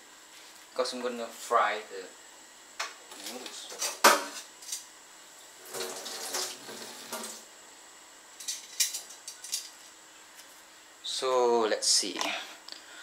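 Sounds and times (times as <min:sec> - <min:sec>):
water splashing in a sink: 0:05.6 - 0:07.4.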